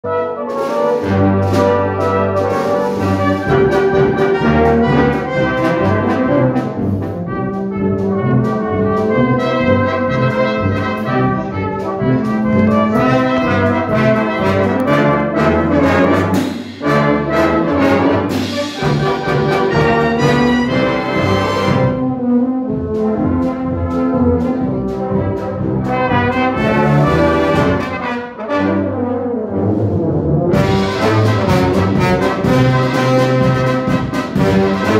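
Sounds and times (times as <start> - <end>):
brass band playing: 0.0 - 34.9.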